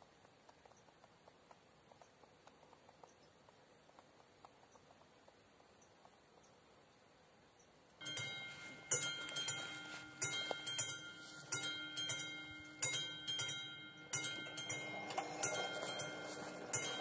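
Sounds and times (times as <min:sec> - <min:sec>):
level crossing warning bell ringing: 0:08.0 - 0:17.0.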